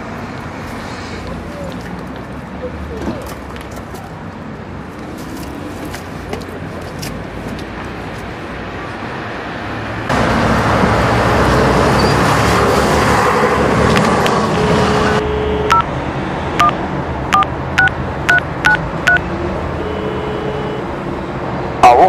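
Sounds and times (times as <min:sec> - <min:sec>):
loud rushing noise: 0:04.6 - 0:19.7
steady phone tone: 0:14.5 - 0:15.9, 0:19.8 - 0:20.9
dual-tone keypad beeps: 0:15.2 - 0:15.9, 0:16.6 - 0:19.2.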